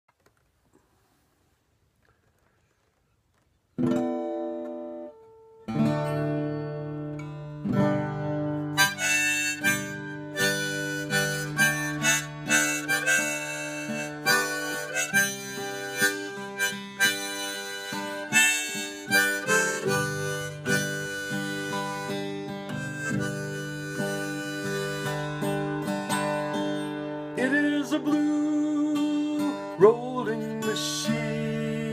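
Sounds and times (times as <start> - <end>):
acoustic guitar strumming: 3.8 - 31.9
harmonica: 8.6 - 31.9.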